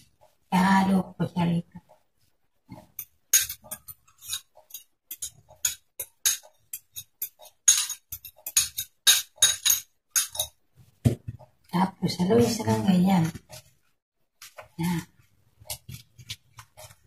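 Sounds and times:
metal spoon clinking ceramic bowl: 3.0s - 10.6s.

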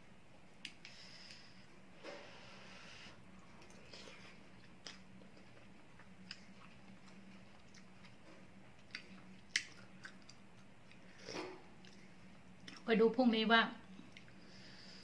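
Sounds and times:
faint low hum: 0.0s - 15.0s
person chewing noodle soup: 3.5s - 12.8s, 14.0s - 14.6s.

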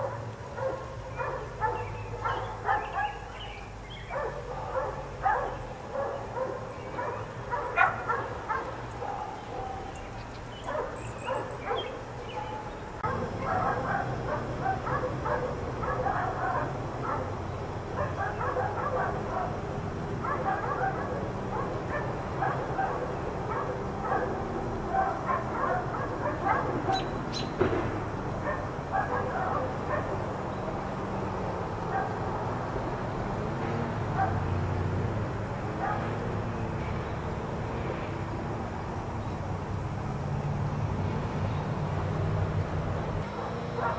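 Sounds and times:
dogs barking: 0.0s - 37.6s, 43.4s - 43.9s
dog yips: 24.9s - 27.5s.

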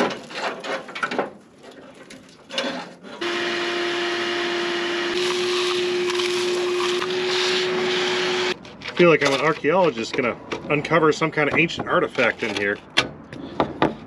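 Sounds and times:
shop vacuum whining: 3.2s - 8.6s
hose sucking debris: 5.1s - 8.6s.

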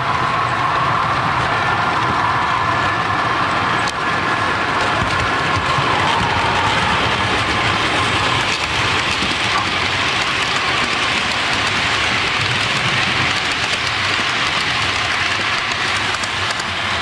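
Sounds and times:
model trains rumbling on track: 0.0s - 17.0s.

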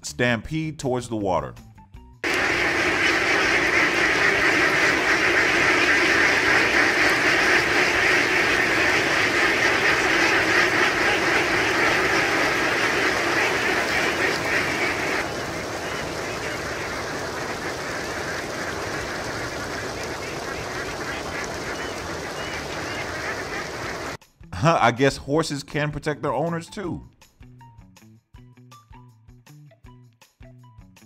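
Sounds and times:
flock of ducks quacking: 2.2s - 24.2s.

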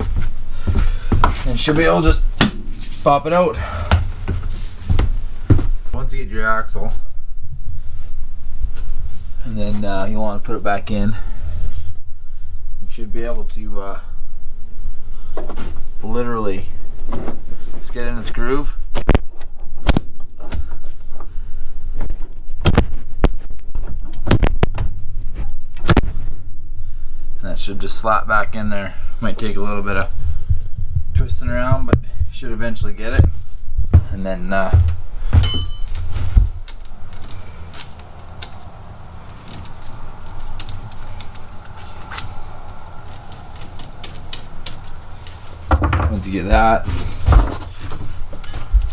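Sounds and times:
metallic ring: 19.6s - 21.2s, 35.4s - 38.5s, 39.3s - 41.8s
sharp knocks: 33.9s - 36.7s
light metallic clicks and clinks: 35.4s - 38.6s, 39.4s - 46.2s.

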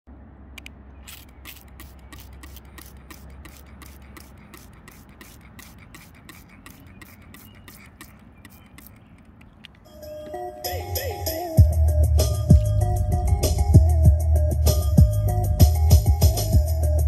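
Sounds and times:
spray bottle squirting water: 1.0s - 9.5s.

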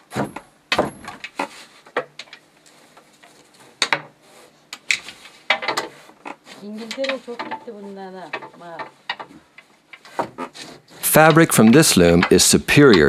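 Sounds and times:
soft rubbing: 2.6s - 9.4s
wooden loom knocks and clacks: 4.8s - 13.0s.

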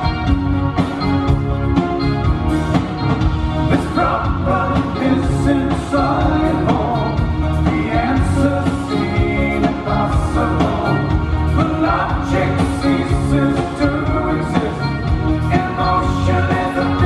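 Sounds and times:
rock band playing: 0.0s - 17.0s
man singing lead vocal: 3.7s - 17.0s.

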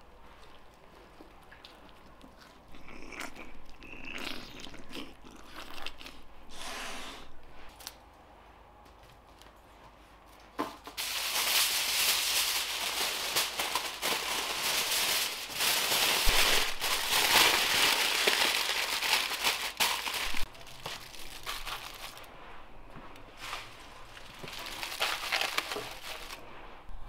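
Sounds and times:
aluminium foil crinkling: 10.9s - 22.3s, 23.4s - 26.4s.

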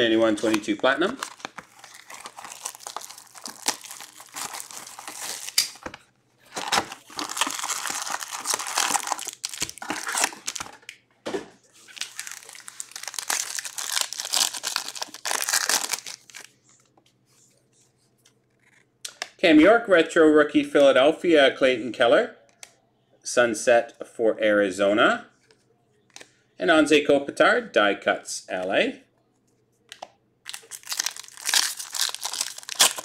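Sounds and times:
plastic wrapping crinkling and tearing: 0.2s - 5.9s, 6.5s - 10.9s, 11.8s - 16.5s, 30.5s - 33.0s.

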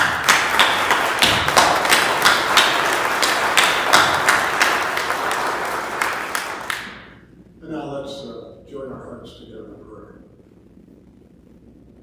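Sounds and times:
crowd applauding: 0.0s - 7.2s.

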